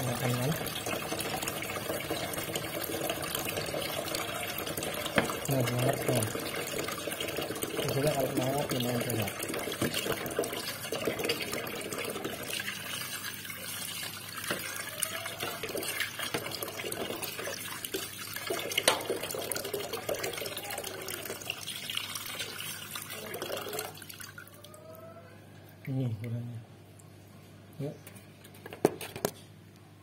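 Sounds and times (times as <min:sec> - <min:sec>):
tap water running into sink: 0:00.0 - 0:24.4.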